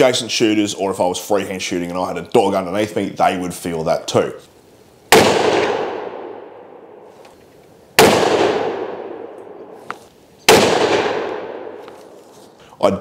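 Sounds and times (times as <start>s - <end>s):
rifle shots echoing: 5.1s - 7.1s, 8.0s - 9.8s, 10.5s - 12.2s.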